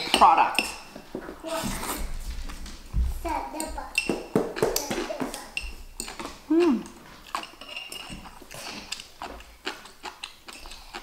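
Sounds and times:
cutlery clicking on ceramic plates: 3.6s - 9.4s.

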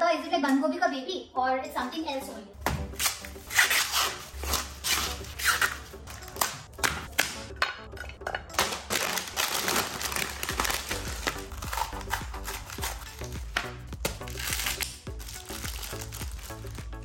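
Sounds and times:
plastic packaging crinkling: 8.5s - 17.0s.

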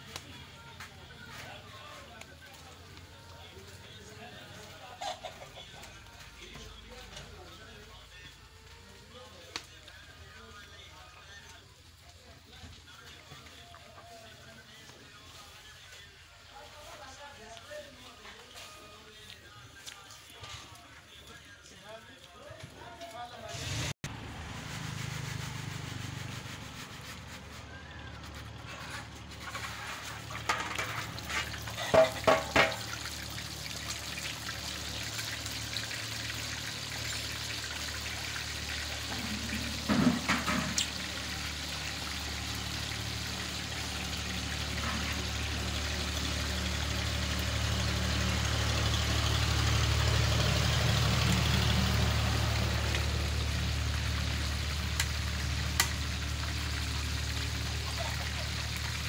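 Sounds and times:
fish deep-frying in oil: 29.1s - 59.0s.

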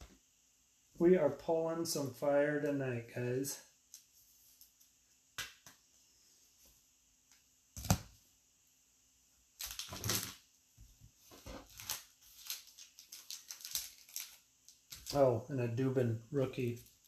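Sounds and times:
trading cards clicking and rustling: 11.6s - 15.2s.

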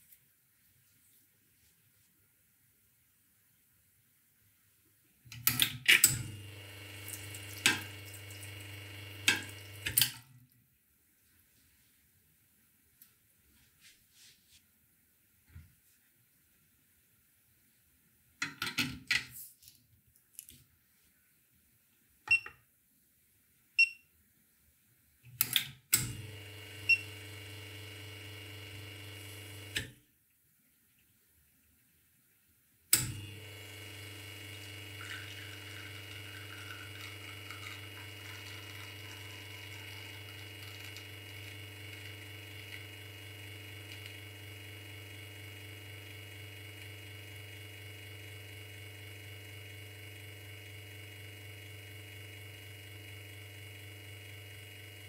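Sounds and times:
espresso machine pump humming: 6.0s - 10.0s, 26.1s - 29.9s, 33.1s - 55.0s.

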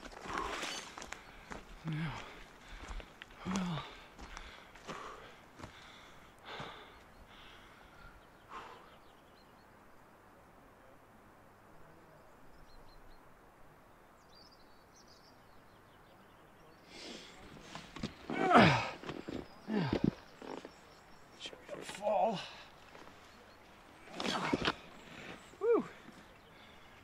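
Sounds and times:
heavy out-breaths: 0.0s - 9.1s, 16.8s - 20.6s, 22.0s - 23.3s, 23.9s - 27.0s.

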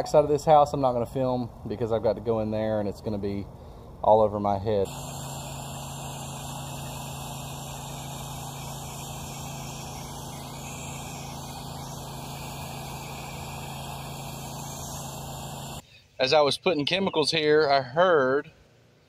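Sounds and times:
pressure washer hum: 4.5s - 15.8s
pressure washer spray hiss: 4.8s - 15.8s.

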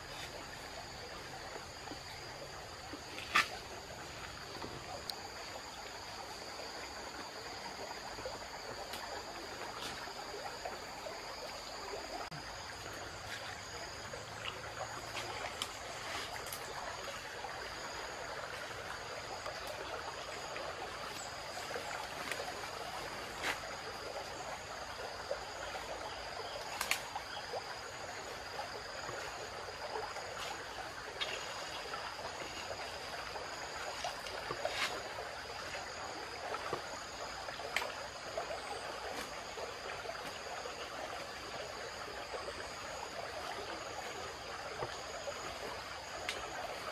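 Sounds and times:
insects droning: 0.0s - 46.9s
stream flowing over gravel: 0.0s - 46.9s.

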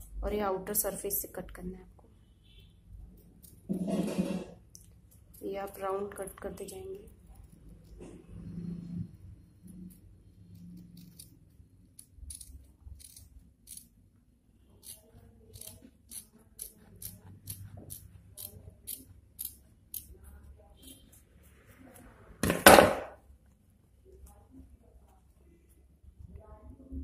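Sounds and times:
scissors snipping paper: 3.1s - 3.7s, 9.6s - 14.0s, 14.8s - 22.1s.

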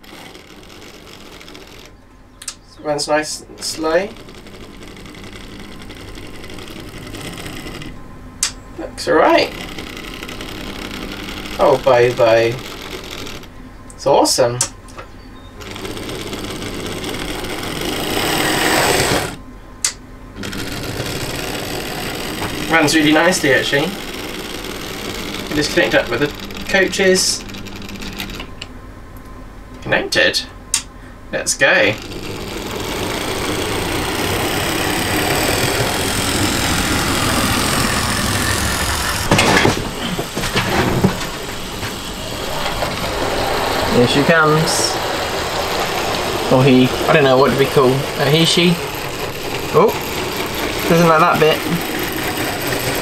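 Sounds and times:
model train motor whirring: 0.0s - 2.0s, 3.2s - 8.0s, 9.2s - 13.6s, 15.6s - 19.4s, 20.4s - 28.5s, 31.6s - 53.0s
wheel rumble: 15.6s - 19.4s, 20.4s - 27.6s, 31.8s - 53.0s
sharp clicks and knocks: 32.0s - 53.0s.

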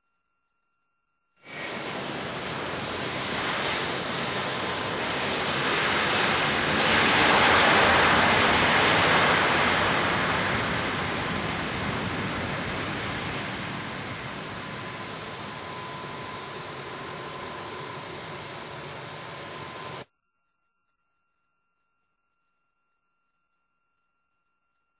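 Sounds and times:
jet airliner rushing noise: 1.4s - 20.0s.

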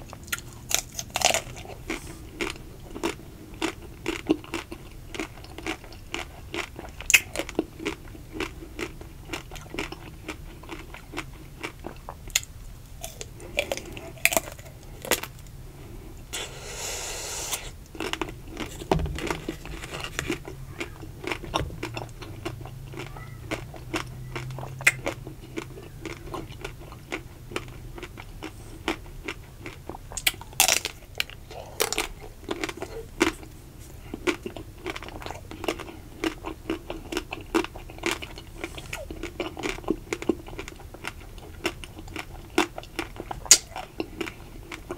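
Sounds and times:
chewing ice cream: 0.0s - 44.9s
chocolate shell crunching: 0.1s - 15.5s, 17.6s - 33.4s.

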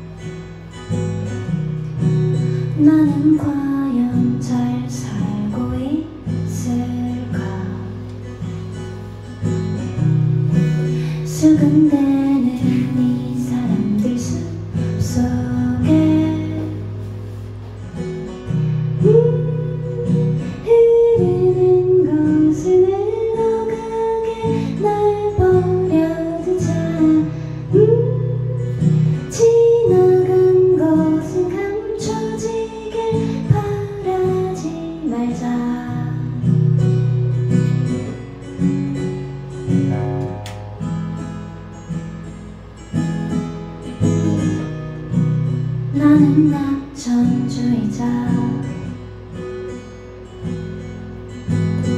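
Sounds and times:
acoustic guitar strumming: 0.0s - 51.9s
woman singing: 2.4s - 8.2s, 11.2s - 17.1s, 19.0s - 37.1s, 45.9s - 49.1s.

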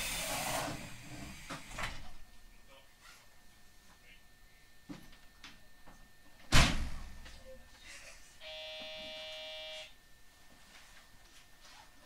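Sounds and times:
buzzer tone: 8.4s - 10.0s.

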